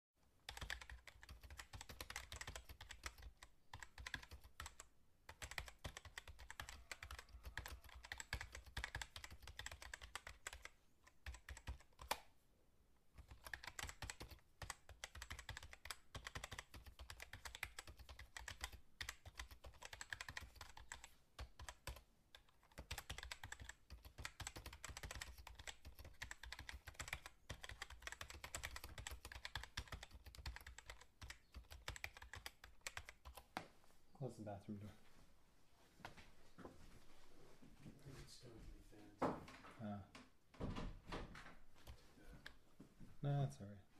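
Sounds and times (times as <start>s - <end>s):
fast typing on keyboard: 0.4s - 12.2s, 13.2s - 33.5s.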